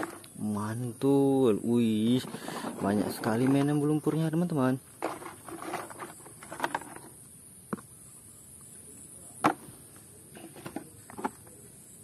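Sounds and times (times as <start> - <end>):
plastic toy vehicles knocking: 0.0 - 0.3, 2.2 - 7.1, 9.4 - 9.7, 10.3 - 11.6.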